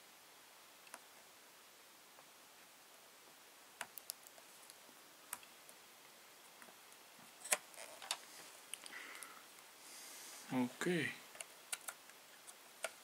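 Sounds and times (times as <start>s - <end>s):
small sharp clicks and taps: 3.8s - 5.5s, 11.4s - 13.0s.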